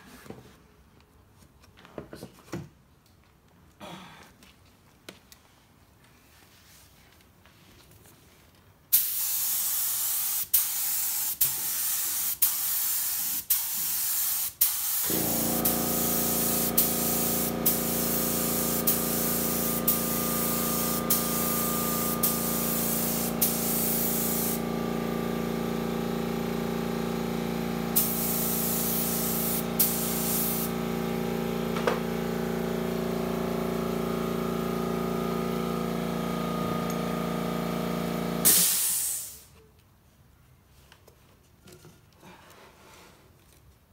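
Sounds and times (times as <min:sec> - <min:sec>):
spray gun hissing: 0:08.9 - 0:31.4, 0:38.4 - 0:39.4
air compressor motor humming: 0:15.0 - 0:38.9.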